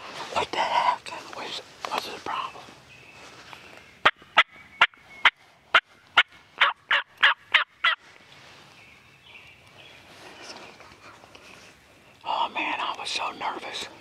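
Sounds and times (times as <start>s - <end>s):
turkey yelps: 6.2s - 8.0s.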